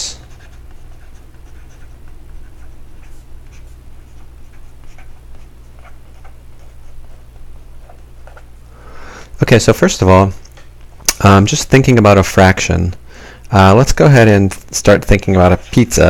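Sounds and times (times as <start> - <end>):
marker scratching and squeaking on board: 0.0 - 8.0
steady low hum: 0.0 - 16.0.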